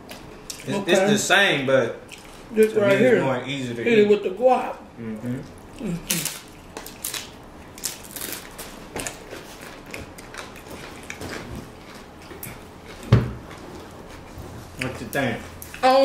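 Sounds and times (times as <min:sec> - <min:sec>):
crunching tortilla chips: 0:05.8 - 0:12.6.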